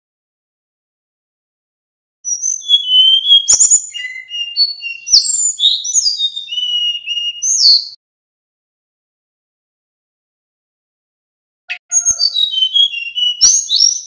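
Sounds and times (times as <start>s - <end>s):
bird whistling song: 2.3s - 8.0s, 11.7s - 14.0s.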